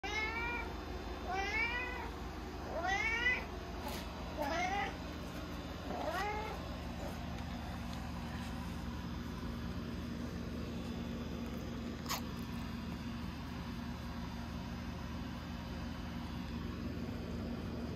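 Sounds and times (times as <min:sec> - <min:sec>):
cat meowing: 0:00.0 - 0:02.1, 0:02.7 - 0:03.5, 0:04.4 - 0:05.0, 0:05.9 - 0:06.6.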